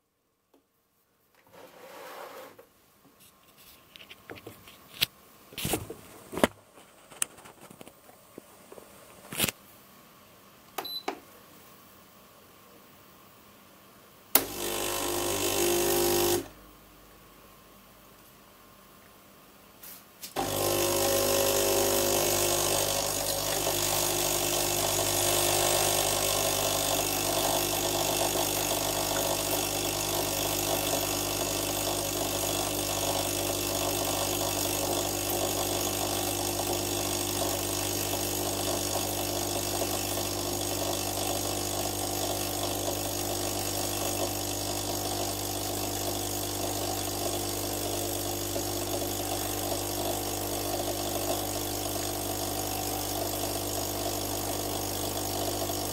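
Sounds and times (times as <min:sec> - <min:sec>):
coffee streaming into cup: 0:14.4 - 0:16.5, 0:20.4 - 0:55.9
coffee machine pump buzzing: 0:14.4 - 0:16.6, 0:20.4 - 0:55.9.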